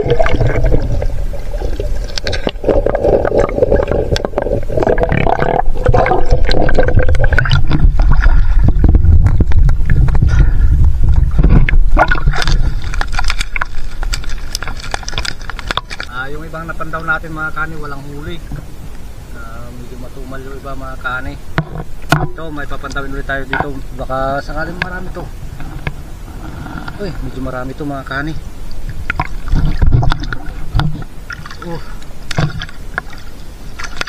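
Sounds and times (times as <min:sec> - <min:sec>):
water sloshing and splashing: 0:00.0 - 0:10.4, 0:11.2 - 0:17.1, 0:28.1 - 0:34.0
heavy low rumble: 0:00.0 - 0:13.0.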